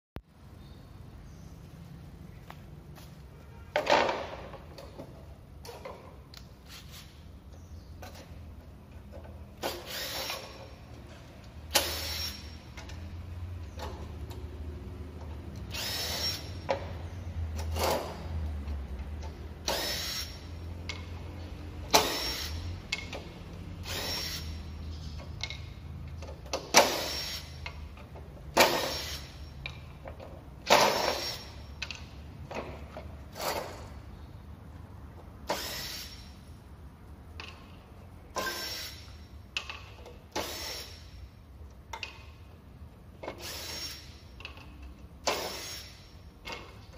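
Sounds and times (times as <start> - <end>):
impact driver driving screws: 9.6 - 10.7, 15.7 - 16.6, 19.6 - 20.5, 21.9 - 23.1, 28.6 - 29.5, 30.7 - 31.6, 35.4 - 36.3, 38.4 - 39.1.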